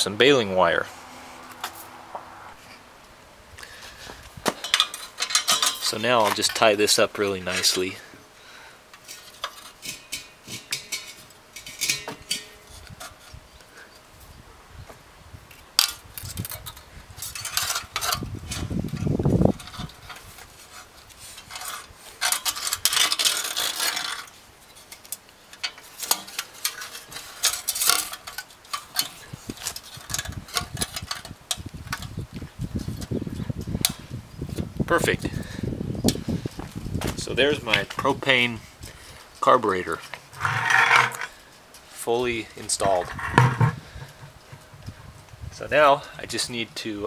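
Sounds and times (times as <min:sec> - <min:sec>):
wire clinking and scraping on pipe: 0:04.6 - 0:06.7, 0:07.4 - 0:08.0, 0:08.9 - 0:13.4, 0:15.8 - 0:32.1, 0:38.0 - 0:41.9, 0:42.6 - 0:44.9.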